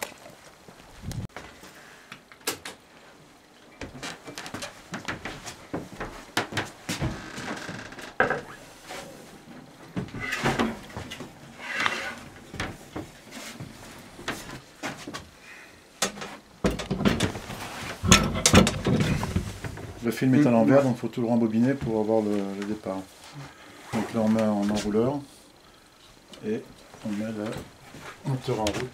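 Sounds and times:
metal film reel clicks and rattles: 0:18.0 - 0:19.4.

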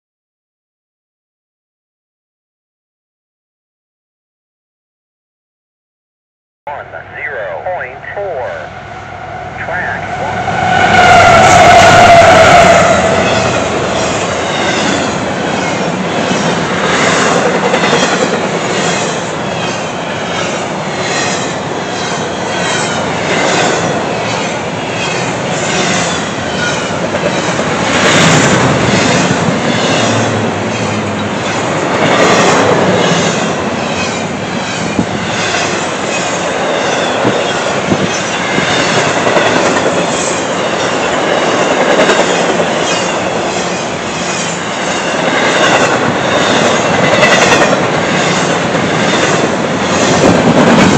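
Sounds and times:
train wheels clattering over rails: 0:11.6 - 0:50.9.

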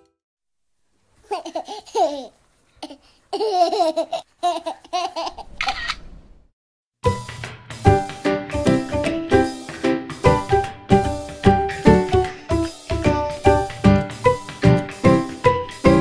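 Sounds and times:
music: 0:00.0 - 0:00.2, 0:07.0 - 0:16.0
toddler laughing and babbling: 0:01.2 - 0:05.6.

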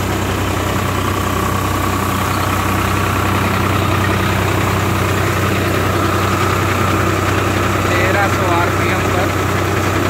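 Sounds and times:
diesel tractor engine running: 0:00.0 - 0:10.0
thresher whirring: 0:00.0 - 0:10.0.

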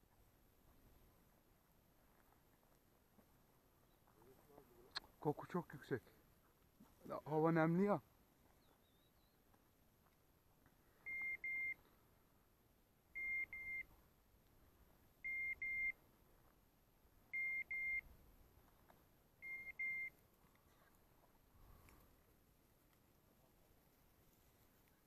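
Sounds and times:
high double beeps: 0:11.1 - 0:11.8, 0:13.2 - 0:13.9, 0:15.3 - 0:16.0, 0:17.4 - 0:18.0, 0:19.4 - 0:20.1.

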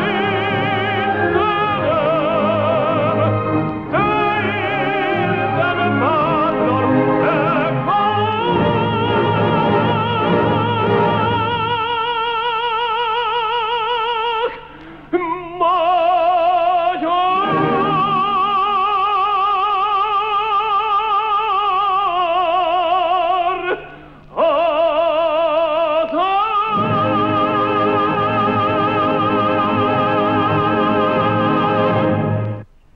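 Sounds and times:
orchestra playing: 0:00.0 - 0:11.7, 0:17.3 - 0:18.9, 0:26.7 - 0:32.7
operatic tenor singing: 0:00.0 - 0:32.6.

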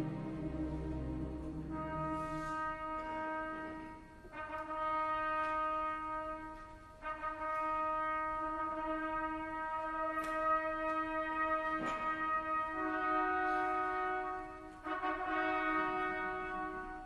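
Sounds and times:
low held musical note: 0:00.0 - 0:04.0.

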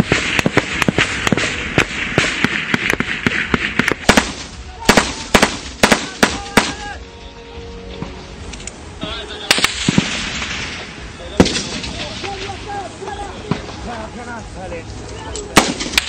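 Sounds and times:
rifle shots: 0:00.0 - 0:06.8, 0:09.5 - 0:12.6, 0:15.6 - 0:16.0.

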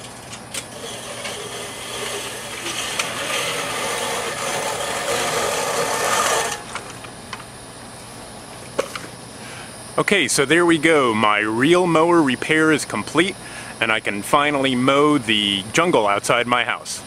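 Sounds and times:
reel mower blades whirring: 0:00.0 - 0:07.0.

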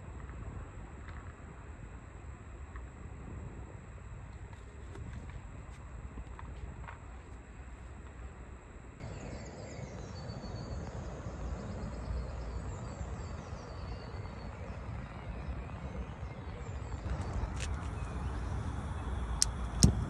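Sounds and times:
low outdoor rumble: 0:00.0 - 0:20.0
faint birdsong chirps: 0:04.4 - 0:20.0.

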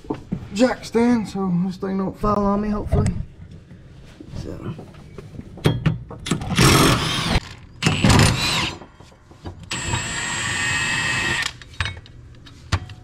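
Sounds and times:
impact wrench whine: 0:06.3 - 0:08.9, 0:09.6 - 0:11.6.

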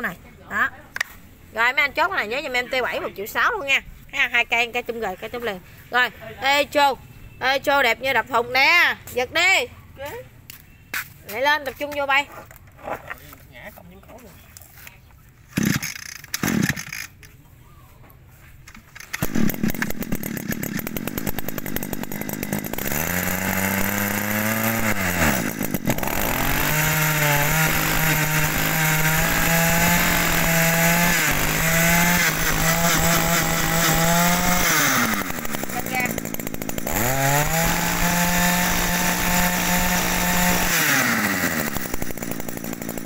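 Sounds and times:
brush cutter engine running: 0:15.6 - 0:17.2, 0:18.7 - 0:43.0.

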